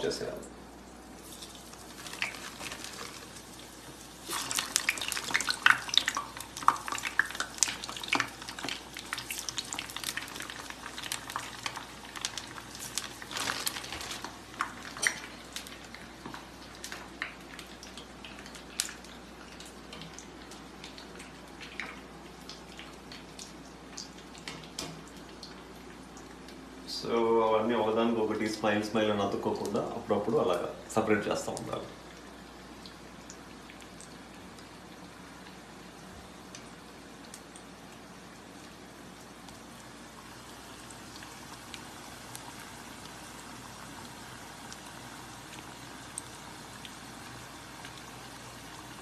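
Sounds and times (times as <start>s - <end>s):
food sizzling in hot oil: 1.1s - 16.4s, 39.6s - 49.0s.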